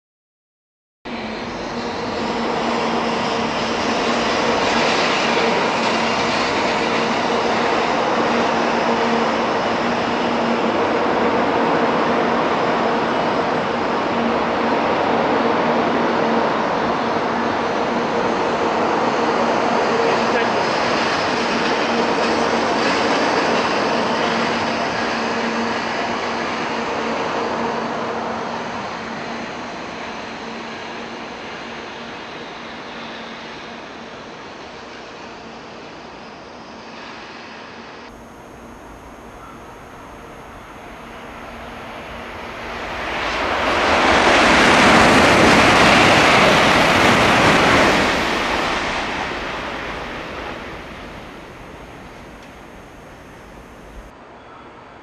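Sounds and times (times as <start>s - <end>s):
high-speed train rushing past: 1.1s - 55.0s
faint steady hum: 38.1s - 43.8s, 46.9s - 55.0s.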